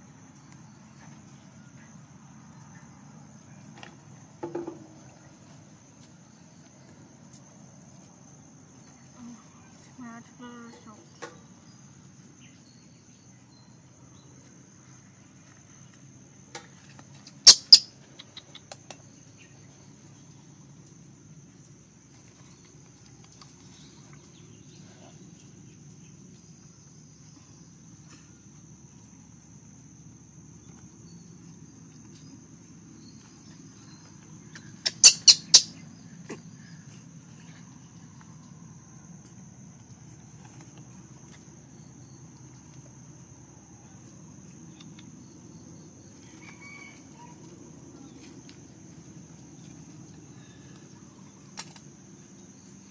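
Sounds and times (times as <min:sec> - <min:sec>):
insects droning: 0:00.0 - 0:52.9
sharp chirps: 0:17.5 - 0:17.9, 0:34.5 - 0:35.8.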